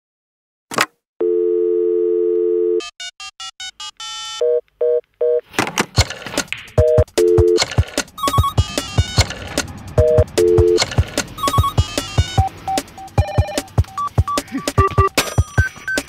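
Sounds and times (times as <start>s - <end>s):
dial tone: 1.2s - 2.9s, 10.0s - 11.8s, 13.1s - 14.1s
rhythmic percussive beat: 6.0s - 16.0s
short phone beeps: 10.0s - 11.8s.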